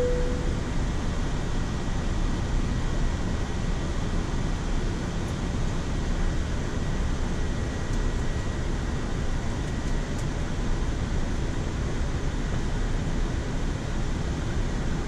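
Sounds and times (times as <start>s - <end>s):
faint high steady tone: 0.0s - 0.7s
airflow and air-conditioning noise: 0.0s - 15.0s.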